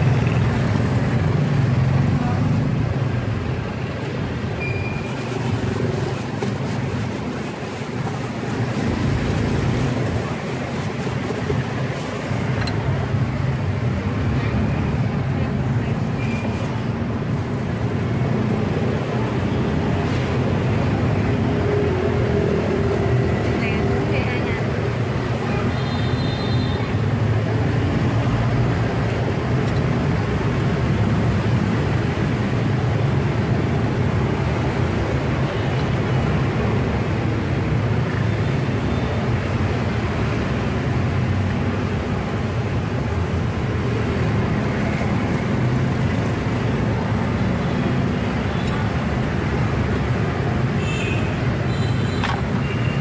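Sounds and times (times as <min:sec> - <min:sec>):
street traffic rumble: 0:00.0 - 0:53.0.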